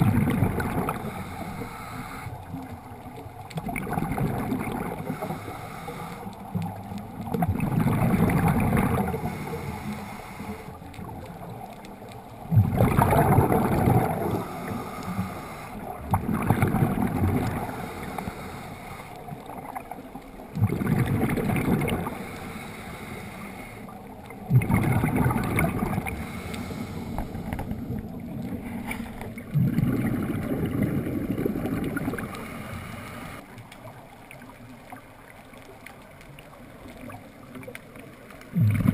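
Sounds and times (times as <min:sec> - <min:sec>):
diver exhaling bubbles underwater: 0:00.0 - 0:01.7, 0:03.6 - 0:05.5, 0:07.2 - 0:09.8, 0:12.4 - 0:18.4, 0:20.5 - 0:22.4, 0:24.4 - 0:33.4, 0:38.5 - 0:38.9.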